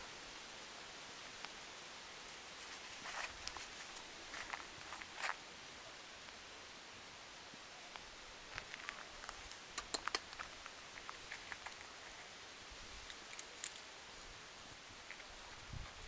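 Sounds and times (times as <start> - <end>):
steady low hiss: 0.0 - 16.0
kittens crunching dry kibble: 8.6 - 11.9.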